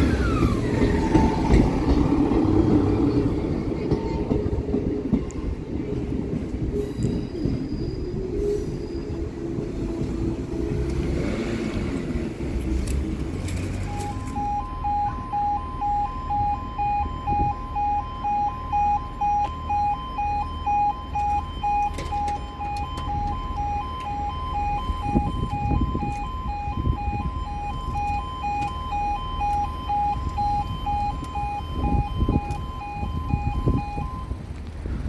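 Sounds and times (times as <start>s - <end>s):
two-tone level crossing alarm: 13.8s - 34.4s.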